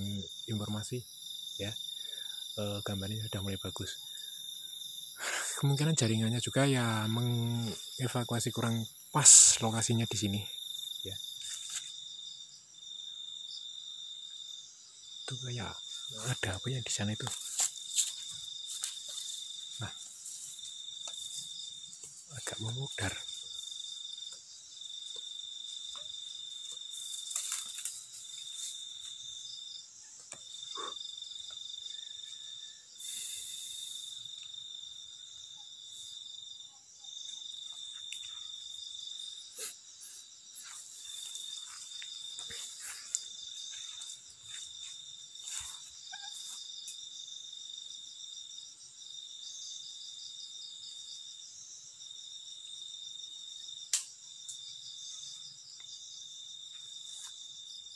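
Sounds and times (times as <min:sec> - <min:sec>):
crickets trilling: 0:00.0 - 0:57.9
pulsing high insect trill: 0:00.0 - 0:57.9
rustles: 0:16.2 - 0:23.8, 0:25.9 - 0:29.4.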